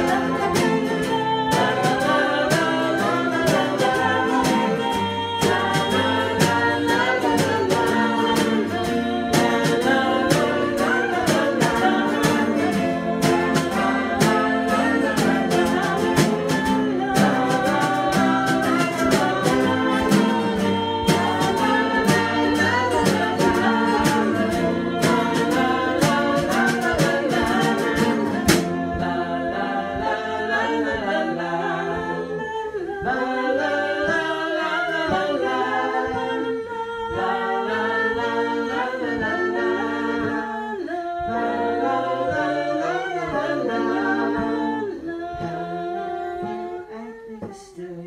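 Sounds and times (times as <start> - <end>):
guitar strumming: 0.0 - 32.2
group of voices singing: 0.0 - 48.0.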